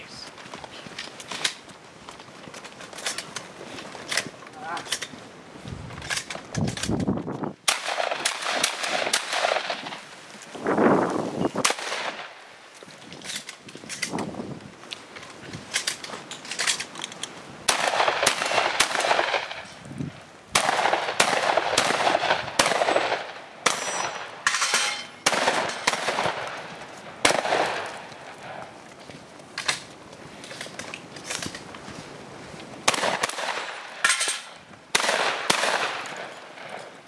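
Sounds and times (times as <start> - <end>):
pistol shots: 7.6 - 10.0, 17.7 - 19.6, 20.5 - 26.6, 27.2 - 28.0, 32.8 - 34.2, 34.9 - 36.8
shotgun shots: 7.6 - 10.0, 11.6 - 12.4, 17.7 - 19.7, 20.5 - 28.0, 32.8 - 34.2, 34.9 - 36.8
gunshot echo off trees: 20.6 - 24.6, 25.2 - 26.6, 27.2 - 28.0, 32.9 - 34.2, 34.9 - 36.8.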